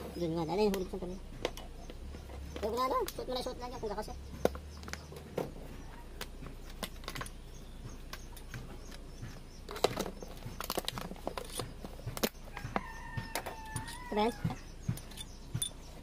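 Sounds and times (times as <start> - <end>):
tools clicking and clinking on metal: 6.5 - 16.0.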